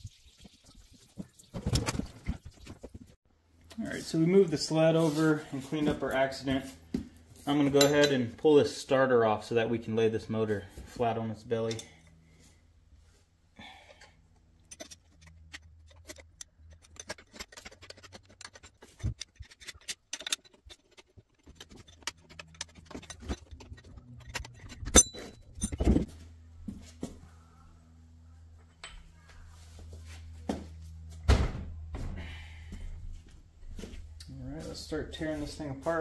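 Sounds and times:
low steady hum: 3.4s - 36.0s
metal tools clicking and clinking: 14.6s - 26.0s.

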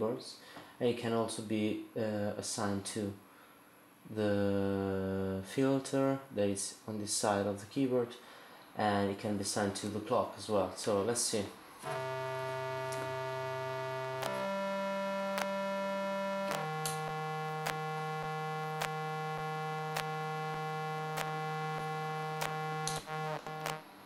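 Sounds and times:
keyboard droning note: 11.8s - 23.8s.

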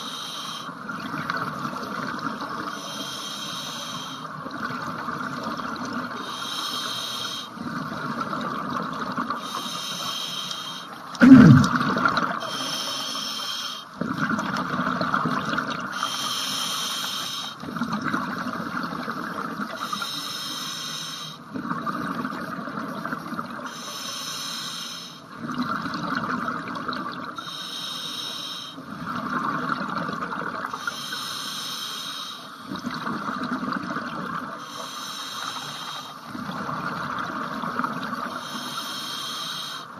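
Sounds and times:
regulator hissing inhale: 0.0s - 0.8s, 2.7s - 4.3s, 6.2s - 7.6s, 9.4s - 11.0s, 12.4s - 13.9s, 16.0s - 17.6s, 19.8s - 21.4s, 23.7s - 25.3s, 27.4s - 28.8s, 30.8s - 32.7s, 34.6s - 36.3s, 38.4s - 39.9s
exhaled bubbles rushing: 11.2s - 12.4s.

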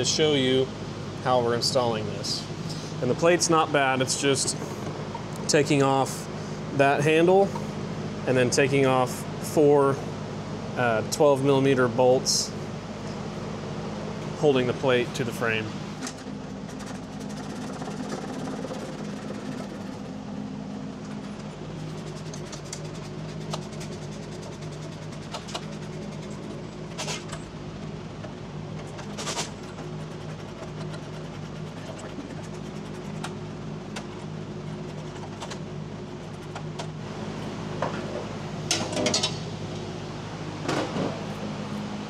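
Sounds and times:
steady machine hum: 0.0s - 42.0s.

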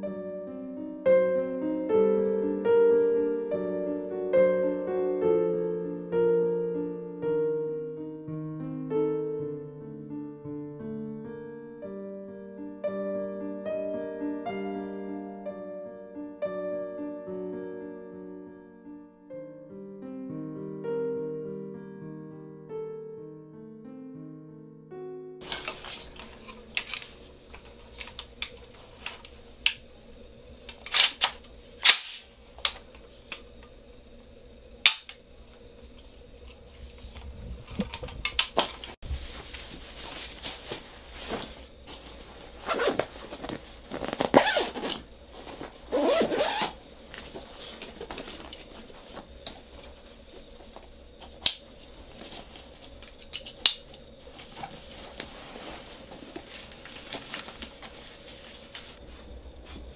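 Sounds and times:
rifle handling clicks and knocks: 30.7s - 32.9s
fabric rustling and scraping: 38.7s - 50.6s, 54.3s - 59.9s.

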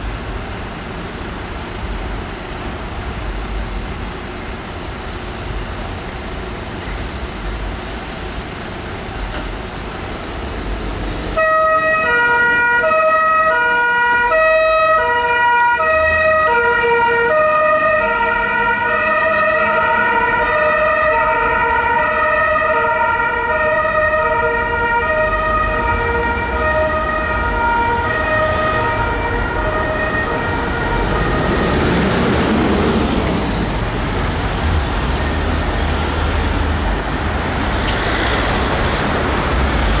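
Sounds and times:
road traffic rumble: 0.0s - 40.0s
fire engine two-tone horns: 11.4s - 31.8s.

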